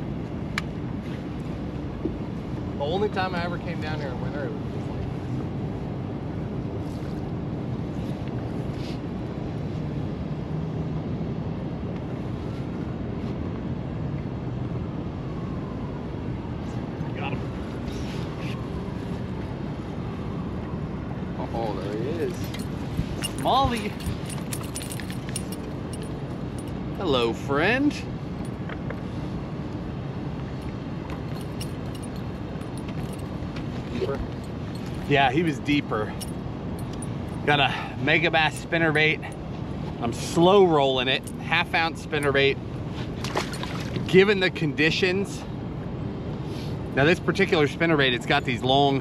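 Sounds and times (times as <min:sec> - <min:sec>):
low outdoor rumble: 0:00.0 - 0:49.0
faint metallic clinks of lure: 0:22.3 - 0:26.8.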